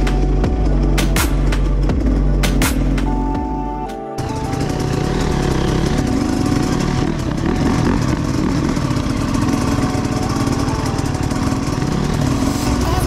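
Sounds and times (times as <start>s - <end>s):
dirt bike engines running: 4.2s - 13.0s.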